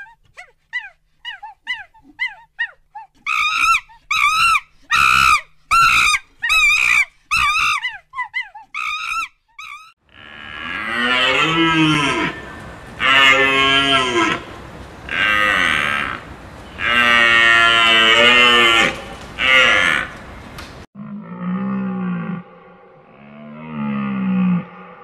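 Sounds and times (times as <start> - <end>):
macaque high calls: 0.0 - 10.0.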